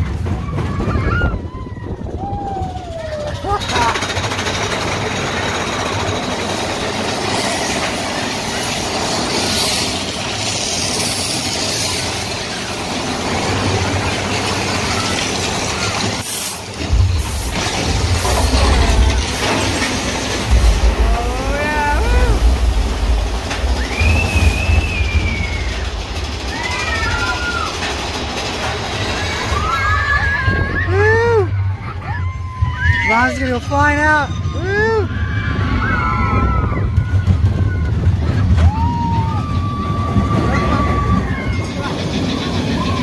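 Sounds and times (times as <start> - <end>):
roller coaster rattling on track: 0.0 - 43.0
riders whooping: 0.1 - 33.5, 34.2 - 43.0
heavy low rumble: 4.2 - 32.8.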